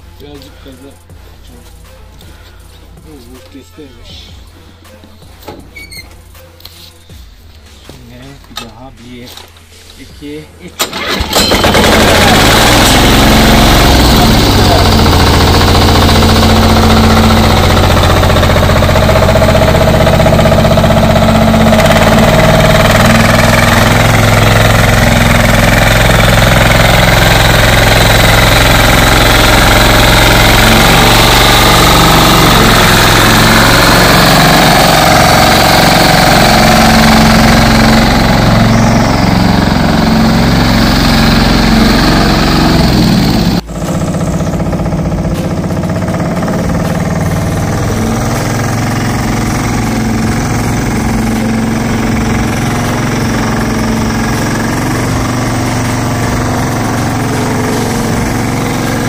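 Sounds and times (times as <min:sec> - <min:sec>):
walking tractor engine chugging: 0:10.8 - 0:59.0.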